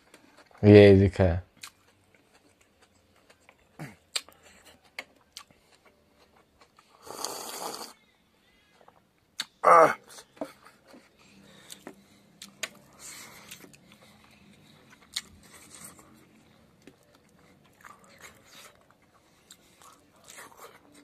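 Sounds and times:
mouth clicks and lip smacks: 0:01.6 - 0:02.7, 0:04.1 - 0:04.4, 0:09.4 - 0:09.6
slurping broth: 0:07.0 - 0:08.0.

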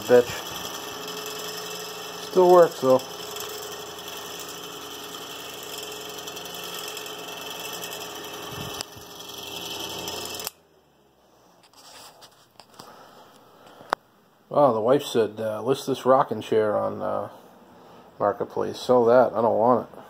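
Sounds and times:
electric fan humming and rattling: 0:00.0 - 0:20.0
faint handling sounds: 0:11.2 - 0:14.0.

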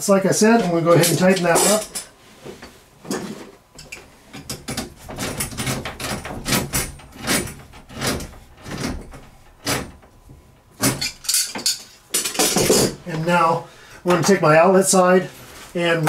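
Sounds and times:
hand tool tightening fitting: 0:03.8 - 0:10.1.

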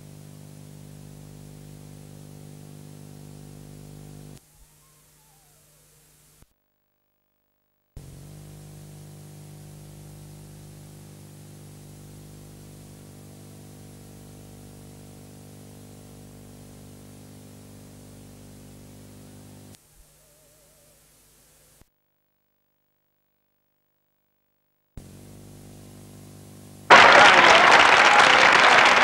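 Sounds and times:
electrical buzz with hiss: 0:00.0 - 0:04.4, 0:08.0 - 0:20.0, 0:25.0 - 0:27.0.

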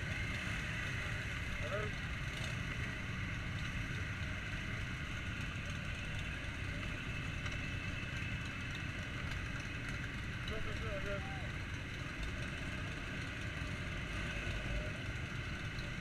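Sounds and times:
motorcycle engines idling: 0:00.0 - 0:16.0.

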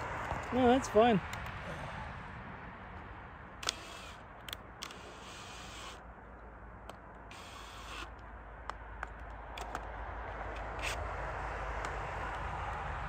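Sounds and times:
cordless drill driving screws: 0:03.6 - 0:06.0, 0:07.3 - 0:08.2, 0:10.5 - 0:11.1
sharp metallic clicks: 0:03.6 - 0:11.1.

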